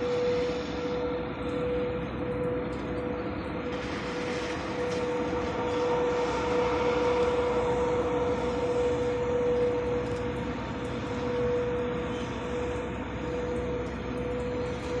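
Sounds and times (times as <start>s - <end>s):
street cleaning truck suction whine: 0.0s - 15.0s.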